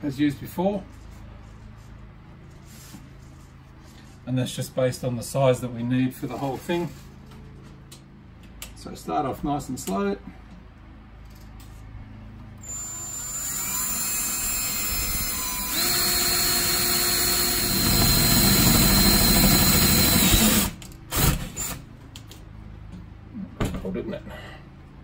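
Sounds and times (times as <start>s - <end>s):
cordless drill drilling into metal: 12.6s - 21.8s.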